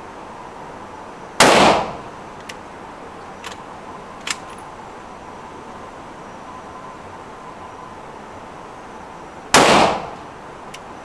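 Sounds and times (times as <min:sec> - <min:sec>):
rifle shot: 0:01.4 - 0:02.1, 0:09.5 - 0:10.2
metallic rifle clicks: 0:04.2 - 0:04.7.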